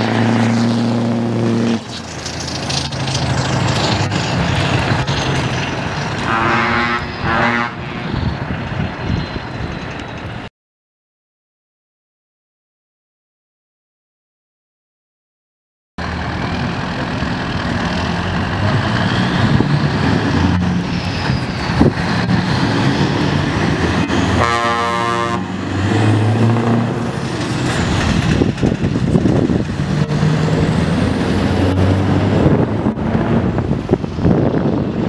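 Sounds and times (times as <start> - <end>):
air horn blast: 6.2 - 8.2, 24.3 - 25.6
diesel truck engine running: 16.0 - 35.0.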